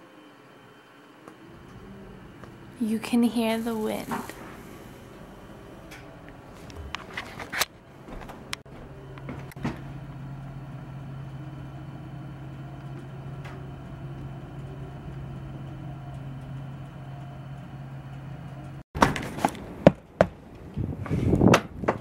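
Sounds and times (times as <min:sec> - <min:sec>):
steady low hum: 0:00.0 - 0:18.8
muffled blizzard wind: 0:19.4 - 0:22.0
wind gusts on microphone: 0:20.6 - 0:22.0.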